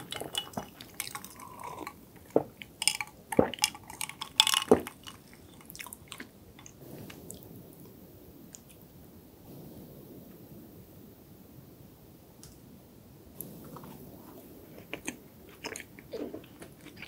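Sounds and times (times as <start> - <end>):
person gulping: 0.0 - 6.7.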